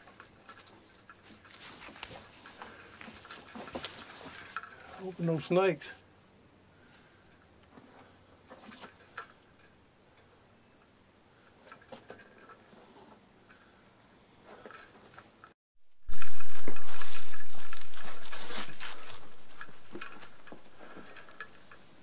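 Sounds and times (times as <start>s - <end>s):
footsteps on trail: 16.1s - 22.0s
high-pitched insect trill: 16.1s - 22.0s.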